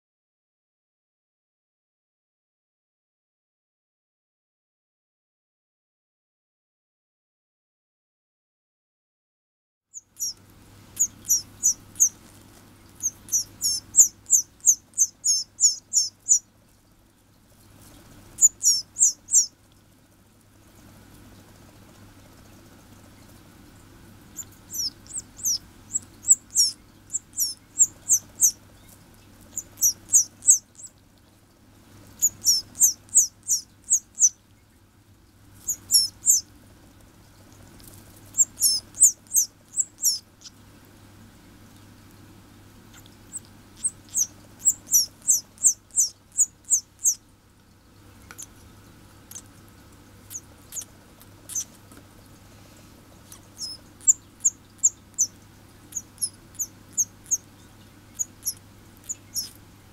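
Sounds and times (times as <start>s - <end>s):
canary chick cheeping: 9.9s - 16.5s, 18.2s - 19.6s, 24.3s - 31.0s, 32.1s - 34.7s, 35.6s - 36.5s, 37.4s - 40.6s, 42.8s - 47.2s, 48.2s - 51.8s, 53.2s - 59.9s.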